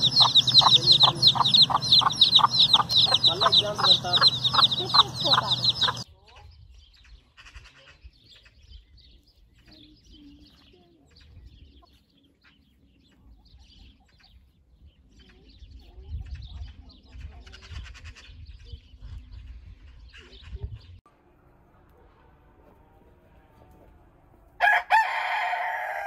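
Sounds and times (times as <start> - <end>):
hens clucking: 0.0 - 6.1
wind rumbling on microphone: 0.0 - 10.5, 13.2 - 21.0
birds chirping: 0.0 - 21.0.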